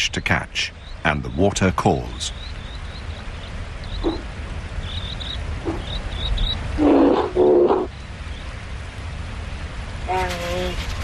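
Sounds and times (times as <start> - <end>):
bird chirps: 0.0 - 8.5
wind rumble: 0.0 - 11.0
bear calling: 3.8 - 8.0.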